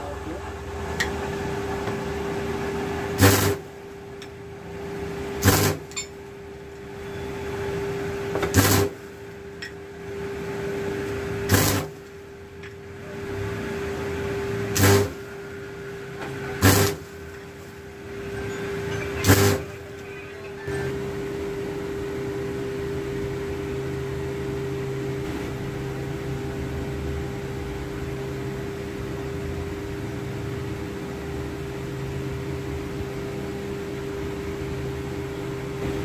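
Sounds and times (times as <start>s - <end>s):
arc welding crackling bursts: 3.2s - 3.7s, 5.4s - 5.9s, 8.5s - 9.0s, 11.5s - 12.0s, 14.7s - 15.2s, 16.6s - 17.1s, 19.2s - 19.8s.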